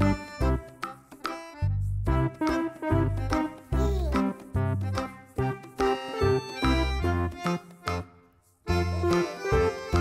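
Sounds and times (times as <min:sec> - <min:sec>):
instrumental music with steady beat: 0:00.0 - 0:10.0.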